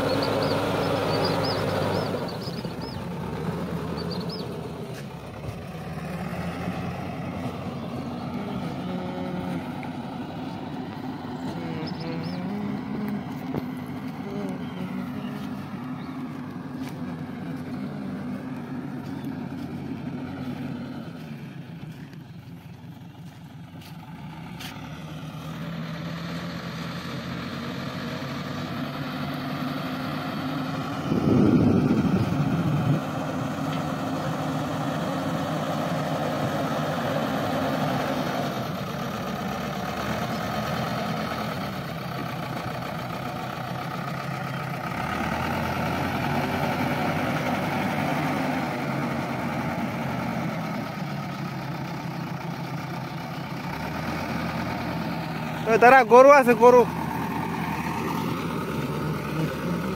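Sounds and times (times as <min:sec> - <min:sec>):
backhoe diesel engine: 0:00.0 - 0:59.9
loud low rumble: 0:30.9 - 0:33.3.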